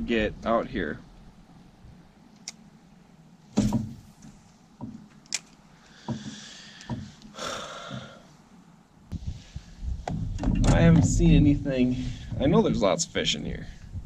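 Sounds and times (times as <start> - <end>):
soft hiss: 0.0 - 14.0.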